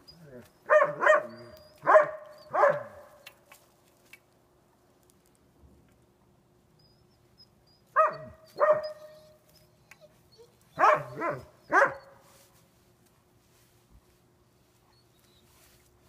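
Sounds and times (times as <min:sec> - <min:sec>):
dog barking loudly: 0:00.7 - 0:03.2, 0:08.0 - 0:09.0, 0:10.8 - 0:12.1.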